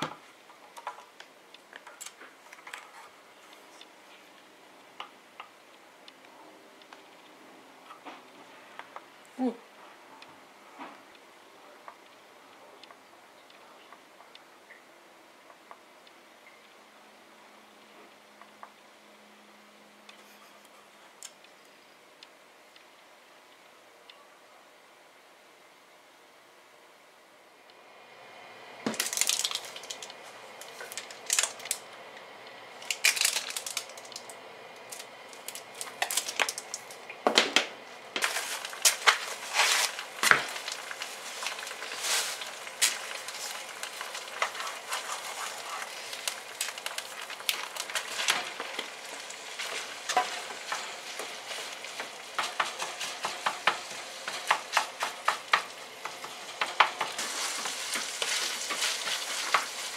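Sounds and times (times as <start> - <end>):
garlic sizzling in oil: 38.2 - 59.9
wooden spatula scraping a pan: 38.2 - 59.9.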